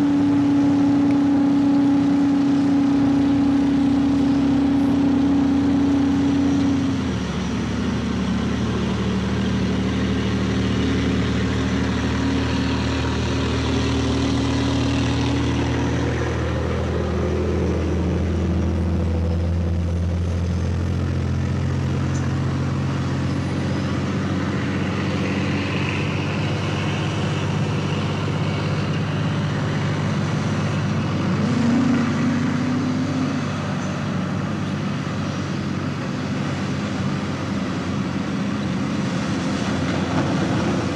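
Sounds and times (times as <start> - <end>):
engine revving: 0.0 - 40.9
heavy diesel engines: 0.0 - 40.9.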